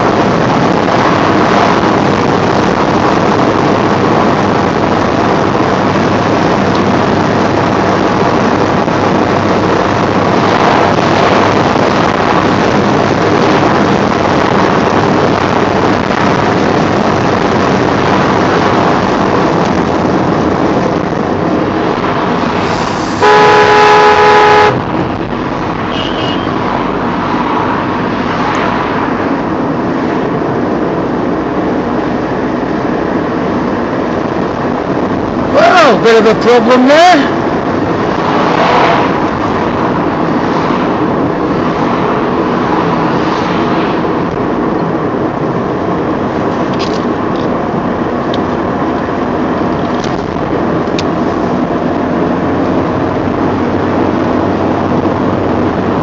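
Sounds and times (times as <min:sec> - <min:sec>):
car road and engine noise: 0:00.0 - 0:56.0
car horn blast: 0:23.2 - 0:24.9, 0:25.9 - 0:26.6.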